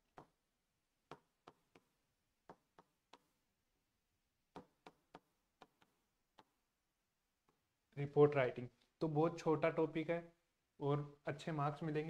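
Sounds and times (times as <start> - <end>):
chalk tapping on blackboard: 1.0 - 3.4, 4.5 - 6.6.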